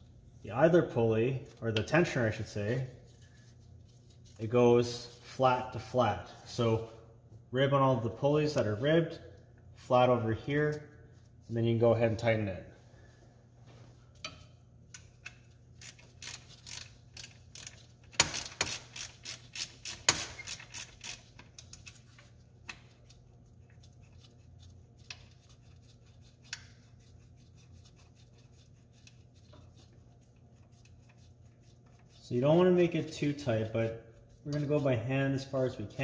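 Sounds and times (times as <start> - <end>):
socket ratchet clicking: 15.2 - 21.9.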